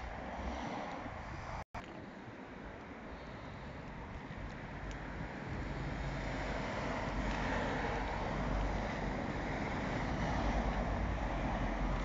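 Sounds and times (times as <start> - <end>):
wind on microphone: 0.0 - 1.6.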